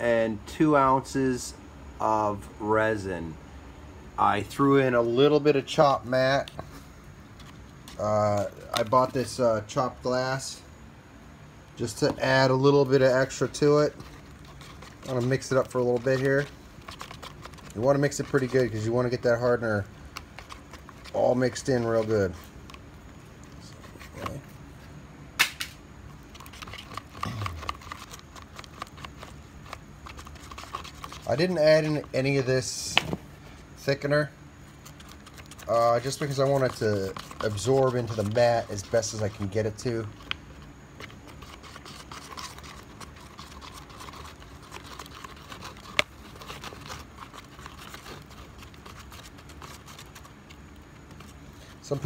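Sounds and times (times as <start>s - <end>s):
stick scraping a plastic cup: 11.9s - 22.8s, 23.4s - 24.5s, 26.1s - 32.8s, 34.7s - 52.0s.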